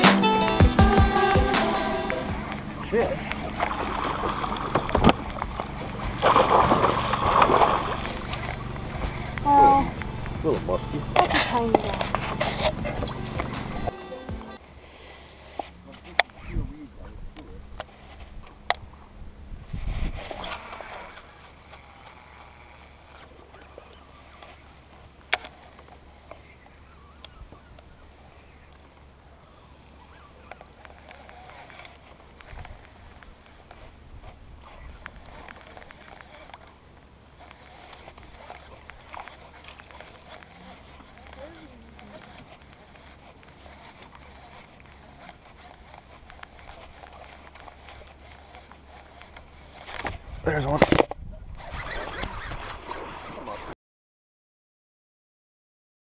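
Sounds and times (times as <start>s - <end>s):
water splashing: 1.5s - 13.9s
wind on microphone: 16.4s - 21.4s, 32.4s - 36.1s, 49.8s - 53.7s
fishing reel clicks: 20.3s - 23.3s
faint bird calls: 20.4s - 24.9s, 25.5s - 32.0s.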